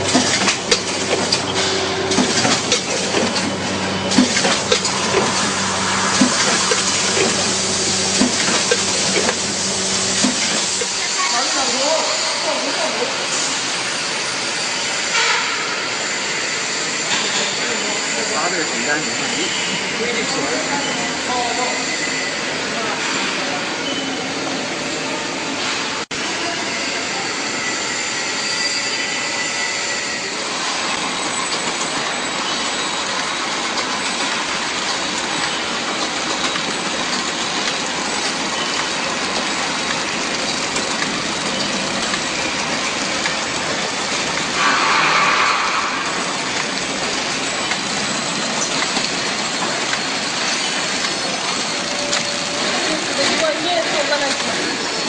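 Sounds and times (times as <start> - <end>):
packing machine clattering: 0.0 - 11.0, 30.7 - 55.0.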